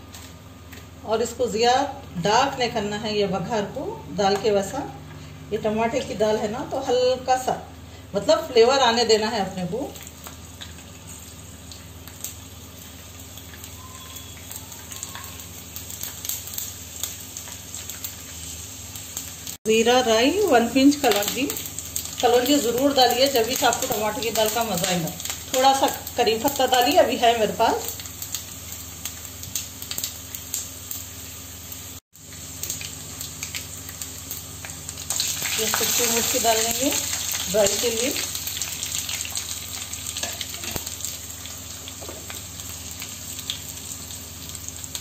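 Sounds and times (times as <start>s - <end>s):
garlic sizzling in hot oil: 0.0s - 45.0s
small crackles and pops: 9.9s - 19.6s, 27.7s - 31.1s, 32.2s - 41.3s.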